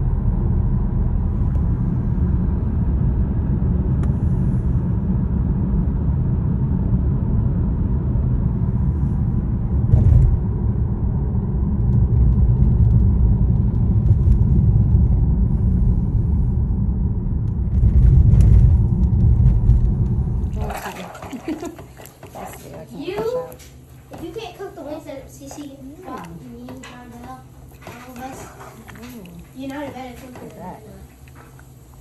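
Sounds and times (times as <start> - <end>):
car interior rumble: 0.0 - 22.1.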